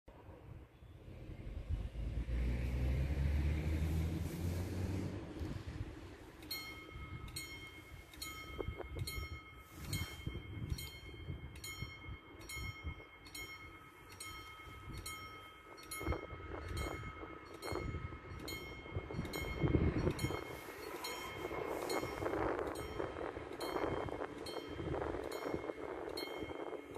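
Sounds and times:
level-crossing warning bell ringing: 6.2s - 26.9s.

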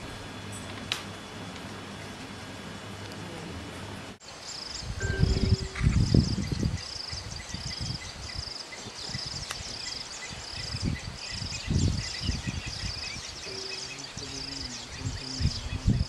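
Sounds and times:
insect chirping: 4.2s - 16.0s
low rumbling: 4.8s - 16.0s.

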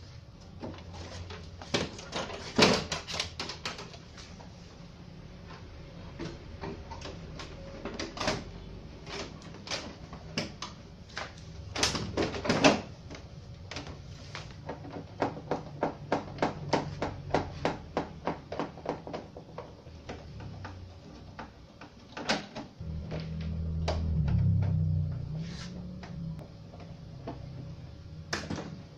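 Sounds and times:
low steady hum: 22.8s - 28.9s.

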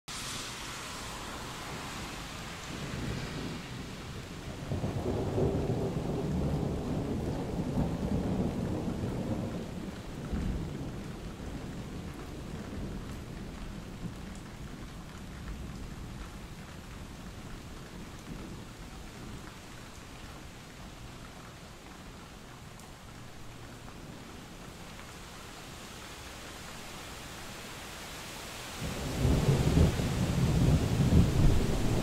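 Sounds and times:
steady rain: 0.1s - 32.0s
deep rumble of thunder: 2.6s - 19.4s, 28.8s - 32.0s.

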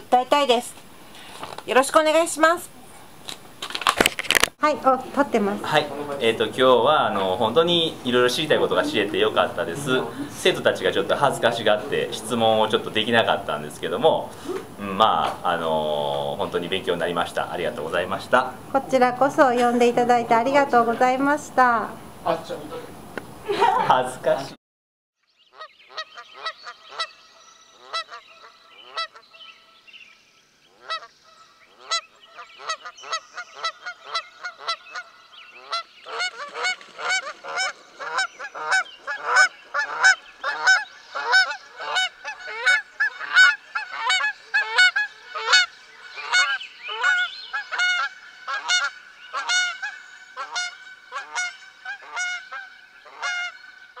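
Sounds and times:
flock of birds honking: 5.6s - 14.4s, 25.6s - 29.3s, 30.7s - 54.0s.

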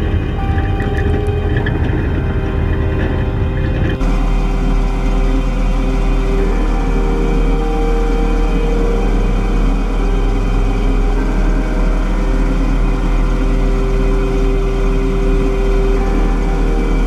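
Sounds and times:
combine harvester engine drone: 0.0s - 17.0s
mechanical whine: 0.0s - 17.0s.

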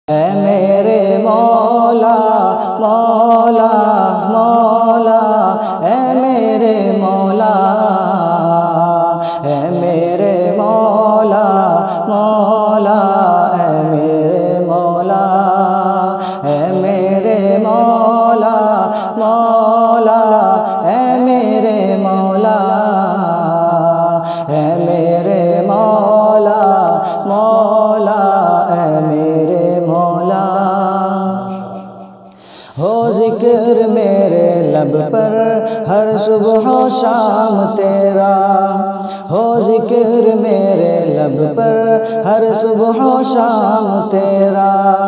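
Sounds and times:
man singing devotional song: 0.0s - 45.0s.

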